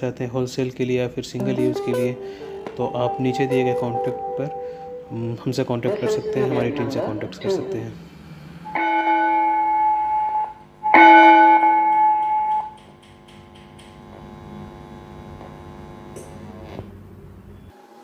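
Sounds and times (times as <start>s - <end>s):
electronic school bell tone: 1.5s - 7.7s, 8.7s - 12.8s.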